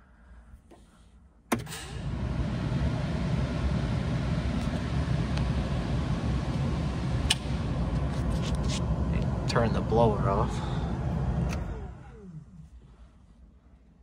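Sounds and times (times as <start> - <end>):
ventilation blower air rush: 1.6 - 13.6
blower switch click: 7.2 - 7.6.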